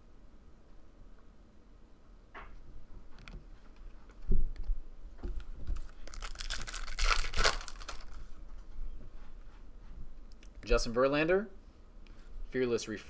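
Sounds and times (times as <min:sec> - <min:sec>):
foil wrapper tearing and crinkling: 0:05.8 - 0:08.2.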